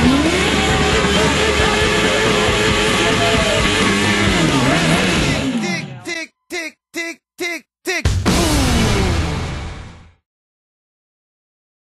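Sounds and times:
rock music: 0.0s - 6.0s, 8.0s - 10.2s.

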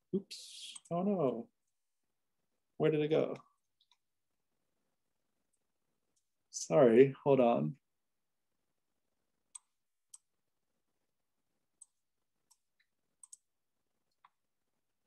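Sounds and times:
computer mouse clicks: 9.5s - 10.4s, 11.8s - 14.4s.

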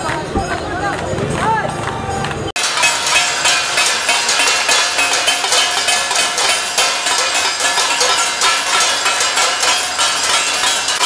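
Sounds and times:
spoon clanging on steel plate: 2.6s - 11.0s.

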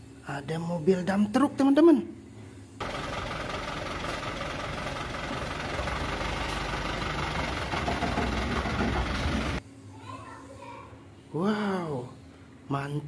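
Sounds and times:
diesel truck engine running: 2.8s - 9.6s.

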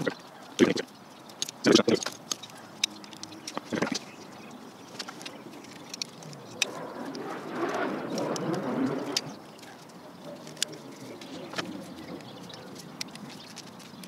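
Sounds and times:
rustling and scraping: 0.0s - 14.0s
screwdriver clicking and scraping metal: 8.1s - 14.0s.

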